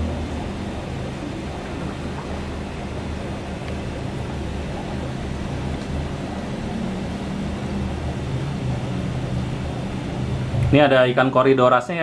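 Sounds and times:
air bubbling in water: 0:00.0 - 0:10.9
air pumps running: 0:00.0 - 0:12.0.

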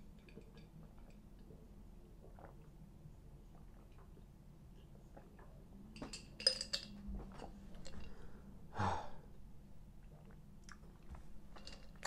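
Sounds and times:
man sighing: 0:08.7 - 0:09.3.

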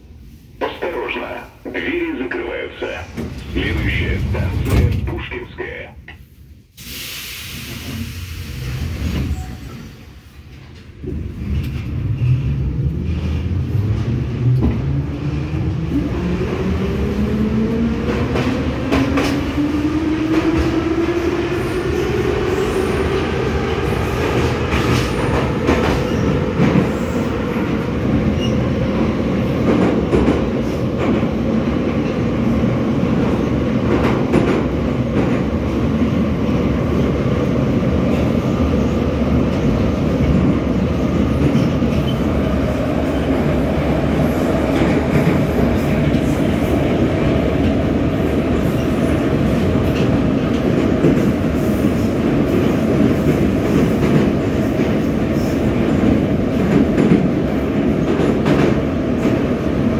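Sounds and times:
metro train whine: 0:00.0 - 0:59.9
train running rumble: 0:00.6 - 0:06.2.

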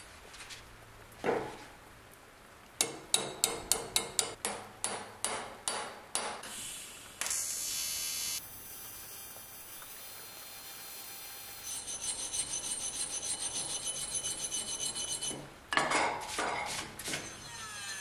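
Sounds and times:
welding arc hissing: 0:06.4 - 0:12.5
hammer ringing on thin metal: 0:11.7 - 0:15.4.

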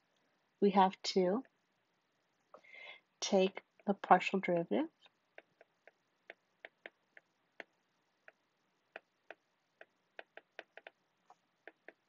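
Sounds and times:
stylus tapping on glass screen: 0:05.0 - 0:12.0.

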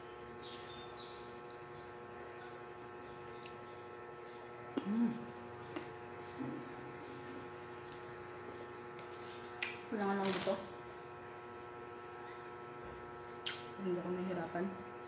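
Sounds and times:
electrical hum: 0:00.0 - 0:15.0
person humming while eating: 0:04.8 - 0:05.3.

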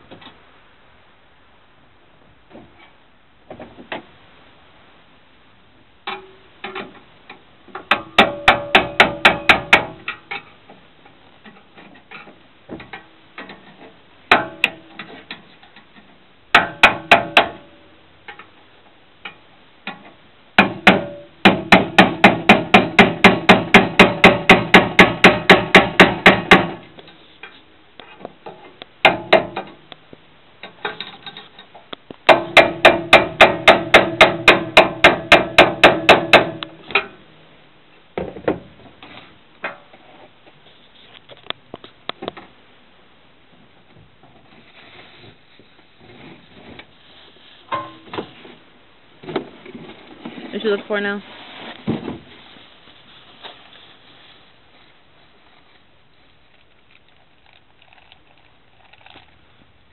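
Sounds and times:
hammer tapping on metal: 0:07.9 - 0:10.0.

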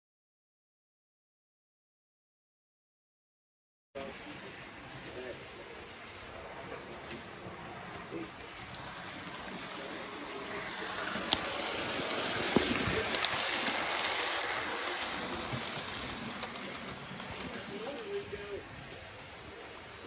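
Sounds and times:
model train running on track: 0:04.0 - 0:20.0
sharp clicks of train: 0:06.6 - 0:19.3.

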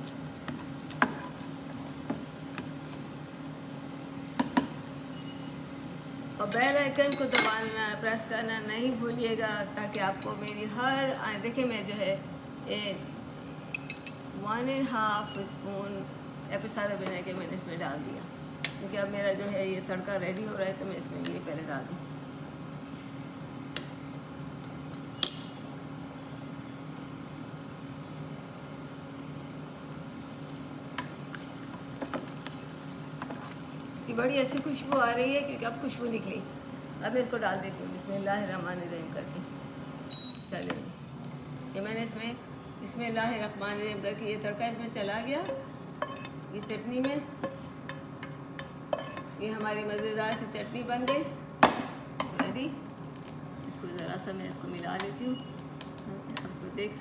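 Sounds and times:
steady low hum: 0:00.0 - 0:57.0
metal spoon clinking ceramic bowl: 0:06.7 - 0:07.6
spatula knocking and scraping pan: 0:45.4 - 0:52.5.

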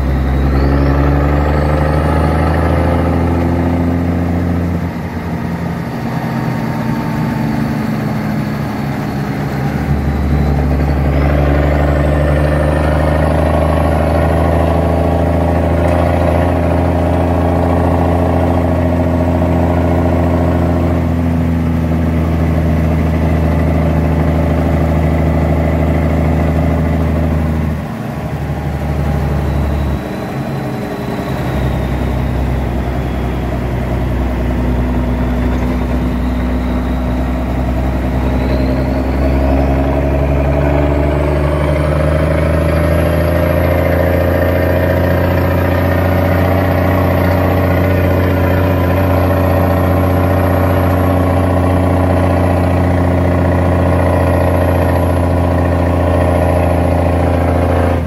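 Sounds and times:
truck engine running: 0:00.0 - 0:58.0.

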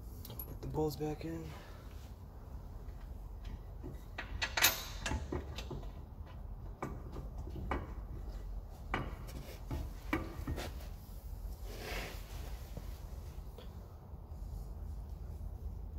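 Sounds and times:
metal bolts clinking: 0:03.4 - 0:08.0.

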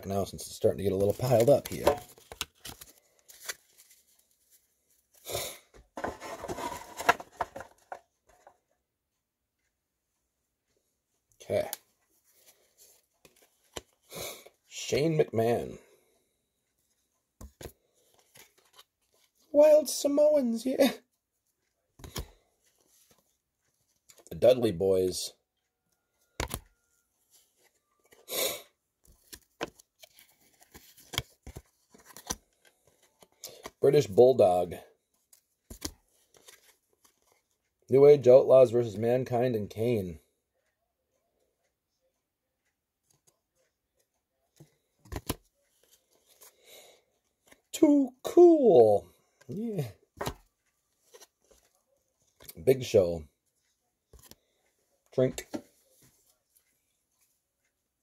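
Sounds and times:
trading cards rustling: 0:00.6 - 0:05.2, 0:06.0 - 0:08.5, 0:29.0 - 0:34.2, 0:49.4 - 0:53.0
trading cards clicking and snapping: 0:45.0 - 0:45.4.

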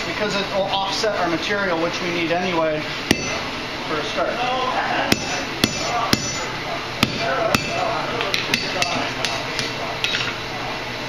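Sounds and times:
hammer striking steel on anvil: 0:03.1 - 0:03.4, 0:05.1 - 0:09.4.

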